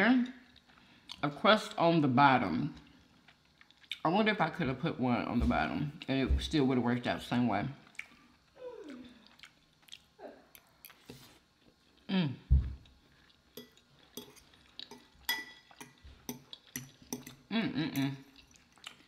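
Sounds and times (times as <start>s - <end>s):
chewing: 2.8s - 4.0s, 7.8s - 12.1s, 12.8s - 19.0s.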